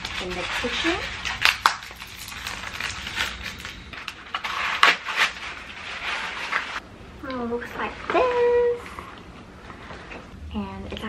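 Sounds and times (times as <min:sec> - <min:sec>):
cardboard and paper rustling: 0:00.0 - 0:06.8.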